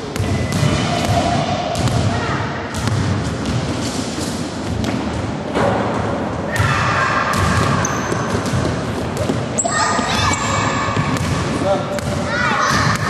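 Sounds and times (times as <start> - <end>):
basketball bouncing on wooden floor: 7.3 - 10.4, 11.0 - 13.0.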